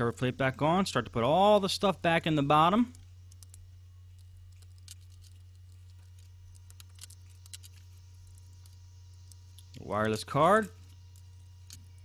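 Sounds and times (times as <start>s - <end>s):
low steady hum: 0.0s - 12.0s
faint small clicks and ticks: 2.7s - 12.0s.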